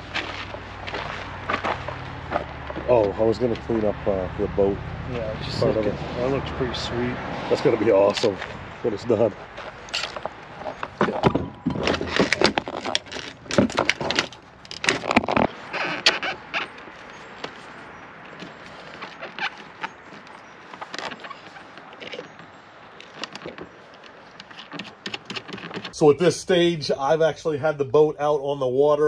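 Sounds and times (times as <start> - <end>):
clicks knocks and rattles of parts: 9.6 - 16.8, 17.4 - 26.0.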